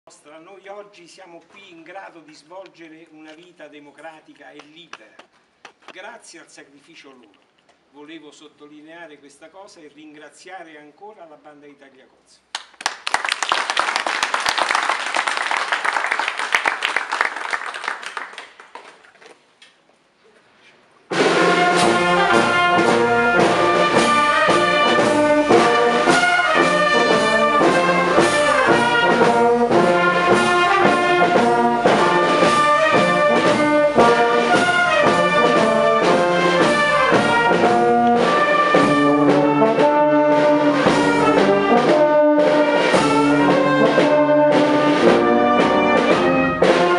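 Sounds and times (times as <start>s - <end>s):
applause: 12.5s - 19.4s
brass band playing: 21.1s - 46.9s.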